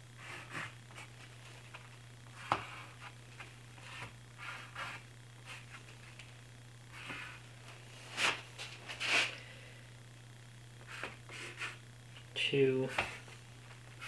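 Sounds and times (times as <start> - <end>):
steady low hum: 0.0 - 14.0
pencil scratching on wood: 0.2 - 1.1, 3.8 - 5.8, 10.8 - 11.8.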